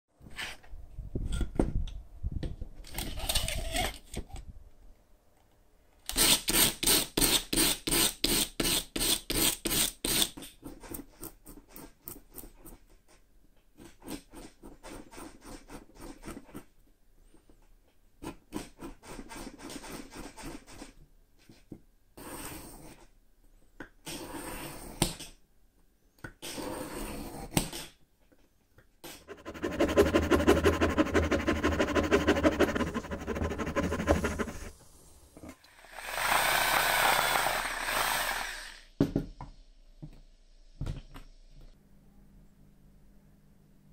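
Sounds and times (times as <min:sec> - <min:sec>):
hand saw cutting wood: 0:29.2 - 0:34.7, 0:35.8 - 0:38.9
hand tools scraping wood: 0:29.2 - 0:34.7, 0:35.9 - 0:38.7.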